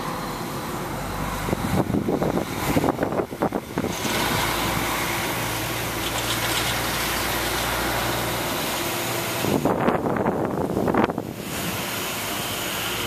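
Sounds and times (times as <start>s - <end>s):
truck engine running: 0.0s - 13.0s
wind buffeting microphone: 1.4s - 5.0s, 9.4s - 11.9s.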